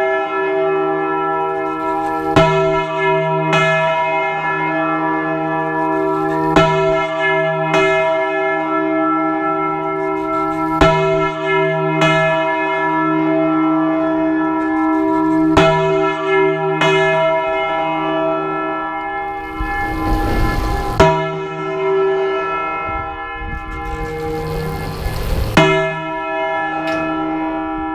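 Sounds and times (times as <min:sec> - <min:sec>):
church bell ringing: 0:00.0 - 0:27.9.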